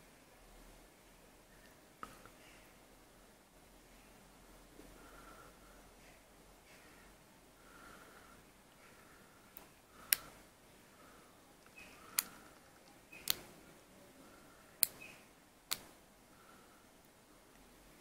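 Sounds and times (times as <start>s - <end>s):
sharp metallic clicks: 9.6s - 10.4s, 11.6s - 13.5s, 14.8s - 15.9s.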